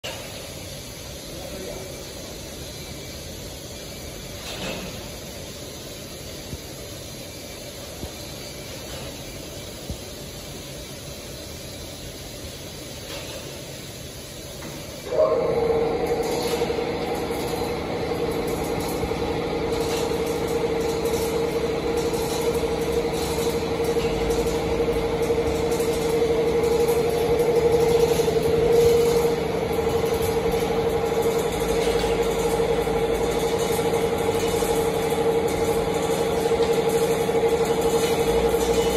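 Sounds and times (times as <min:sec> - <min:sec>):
hydraulic pump whine: 0:14.6 - 0:38.9
low machine hum: 0:15.0 - 0:38.9.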